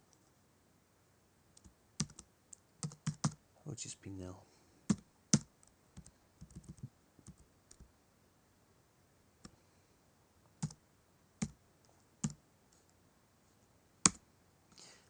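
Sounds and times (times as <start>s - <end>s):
computer keyboard keystrokes: 1.6s - 2.2s, 2.8s - 3.4s, 4.9s - 7.9s.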